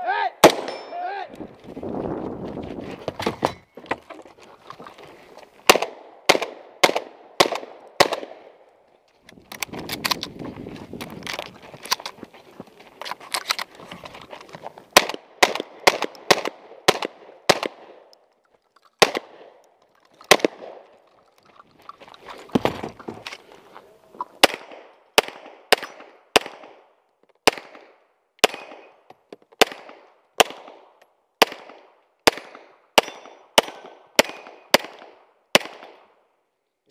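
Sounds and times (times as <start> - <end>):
shotgun shots: 0.4 - 1.0, 5.7 - 8.6, 14.9 - 18.0, 19.0 - 19.6, 20.3 - 20.9, 24.4 - 29.0, 31.4 - 36.0.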